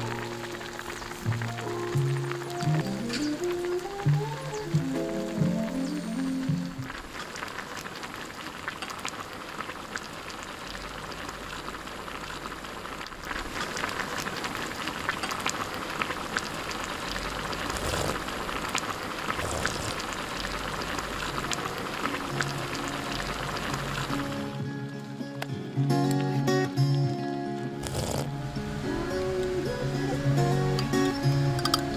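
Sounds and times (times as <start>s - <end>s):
soft background music: 0.0s - 6.9s
stew bubbling and crackling: 0.0s - 25.0s, 27.8s - 31.9s.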